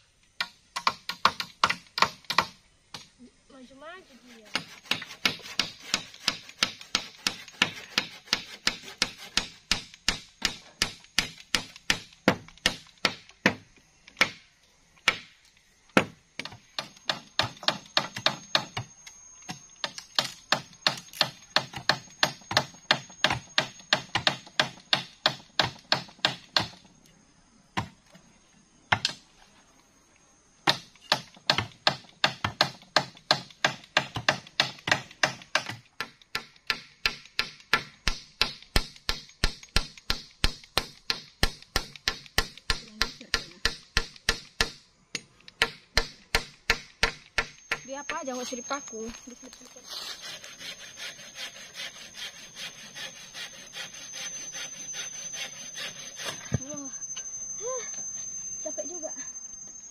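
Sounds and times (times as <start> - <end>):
wood being chopped: 0.4 - 3.1, 4.5 - 15.4, 16.0 - 18.9, 19.8 - 26.8, 30.6 - 48.2.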